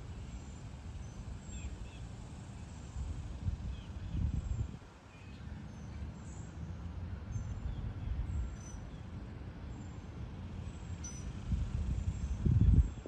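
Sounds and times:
faint high bird chirps: 11.0s - 11.3s.

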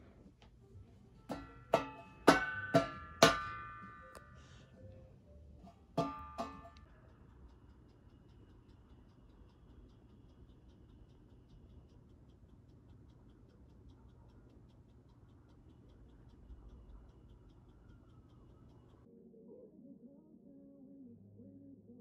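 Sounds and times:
faint even ticking: 5.7s - 19.1s.

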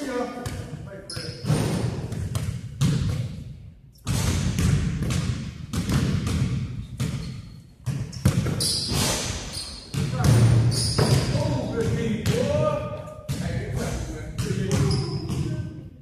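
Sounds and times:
basketball bouncing on wooden floor: 1.4s - 3.4s, 4.1s - 8.7s, 9.8s - 12.6s, 13.3s - 15.5s.

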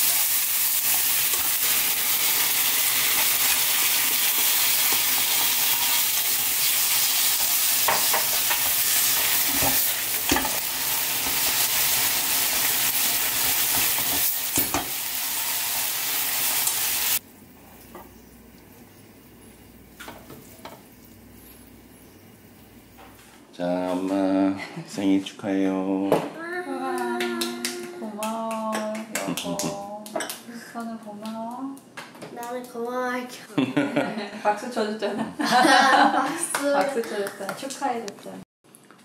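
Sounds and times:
food sizzling in a hot wok: 0.0s - 23.0s.

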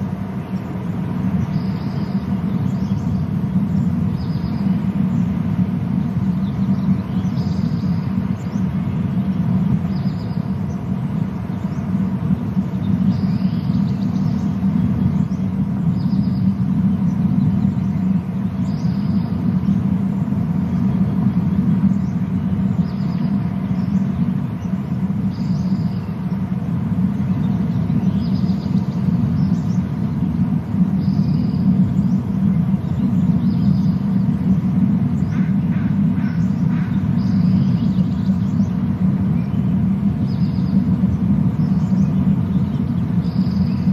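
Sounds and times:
low outdoor rumble: 0.0s - 43.9s
small bird chirping: 0.4s - 43.9s.

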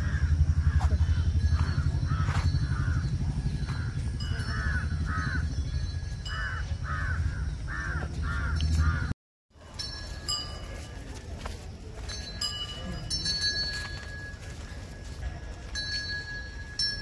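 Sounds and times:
crow cawing: 0.0s - 1.3s, 4.5s - 5.5s, 6.3s - 9.1s
steady low rumble: 0.0s - 9.2s.

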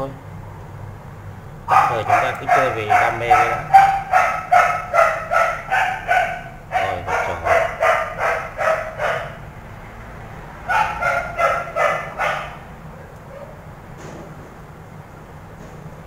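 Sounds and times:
dog barking: 1.7s - 9.4s, 10.6s - 13.6s.

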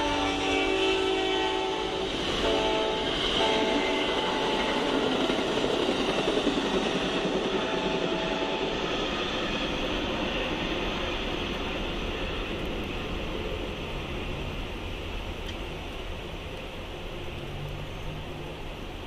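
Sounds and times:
train horn: 0.0s - 5.6s, 7.4s - 8.8s
train rumbling past: 0.0s - 19.0s.

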